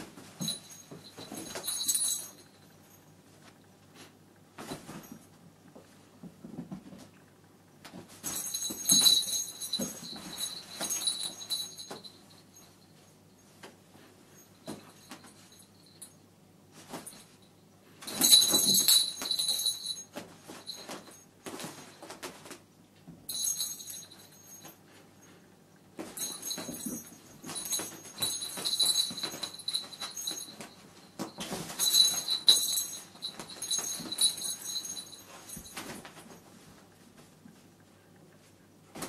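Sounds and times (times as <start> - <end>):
toy bell jingling: 0.4 - 2.7, 8.2 - 12.8, 18.1 - 21.2, 23.3 - 24.8, 26.2 - 35.8.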